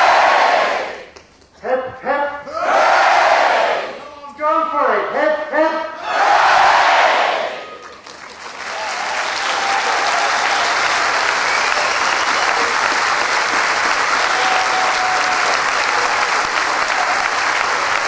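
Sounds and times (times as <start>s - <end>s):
large crowd clapping: 7.6s - 18.0s.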